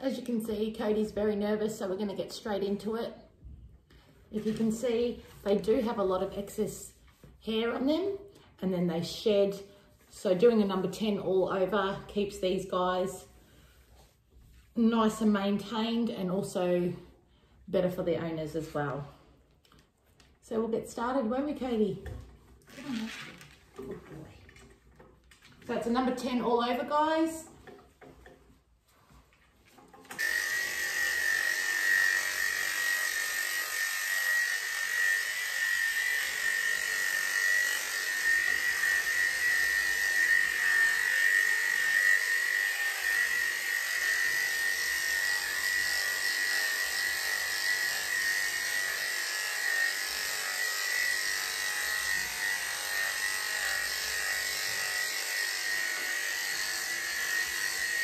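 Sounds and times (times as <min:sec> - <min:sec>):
electric clippers whining: 0:22.7 - 0:23.5, 0:30.0 - 0:58.0.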